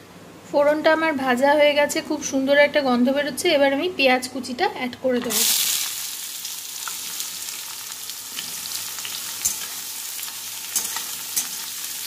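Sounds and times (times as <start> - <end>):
onions sizzling in oil: 5.3 - 12.0.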